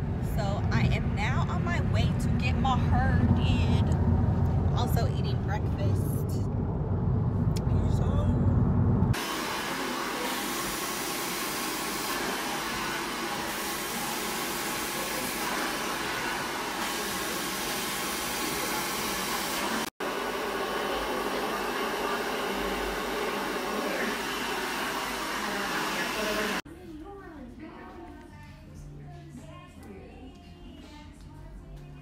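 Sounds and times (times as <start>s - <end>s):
hair dryer blowing: 9.1s - 26.6s.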